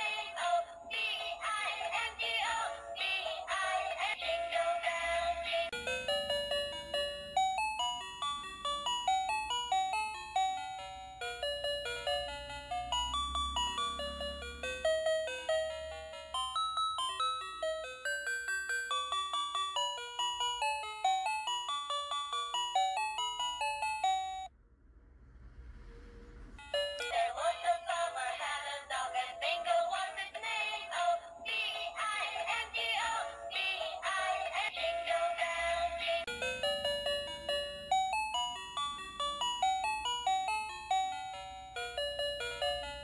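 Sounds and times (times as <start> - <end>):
toy bell-like chime melody: 0.0 - 24.5, 26.6 - 43.0.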